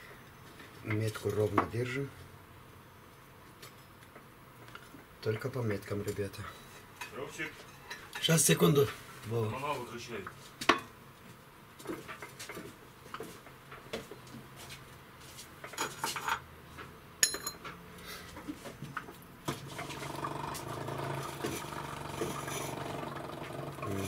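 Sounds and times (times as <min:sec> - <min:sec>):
sharp ringing metallic clink: 0:17.2 - 0:17.6
metal tools clinking and knocking: 0:17.2 - 0:17.7
steady machine hum: 0:19.5 - 0:24.0.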